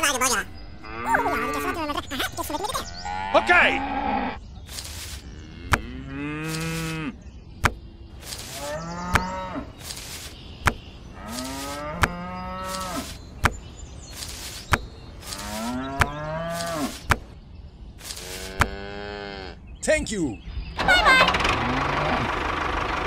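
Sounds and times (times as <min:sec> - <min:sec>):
cattle mooing: 0:00.8 - 0:01.8, 0:05.2 - 0:07.2, 0:08.5 - 0:09.7, 0:11.2 - 0:13.1, 0:18.3 - 0:19.6.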